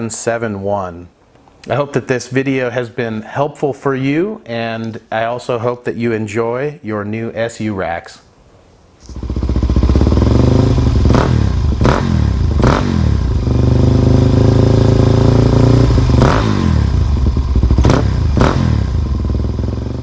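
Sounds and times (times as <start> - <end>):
motorcycle engine revving: 9.0 - 20.0.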